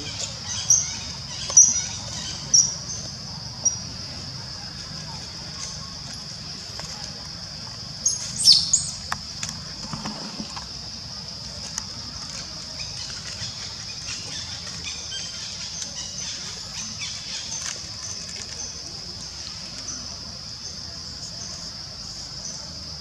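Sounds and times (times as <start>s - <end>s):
insects droning: 0.0s - 23.0s.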